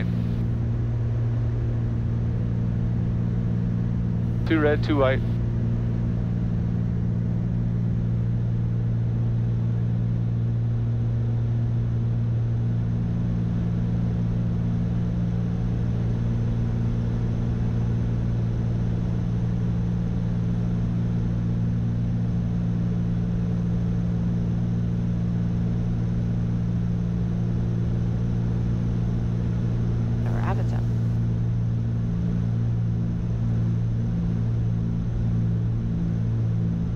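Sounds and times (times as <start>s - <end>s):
twin piston engines droning: 0.0s - 0.5s, 4.4s - 5.4s.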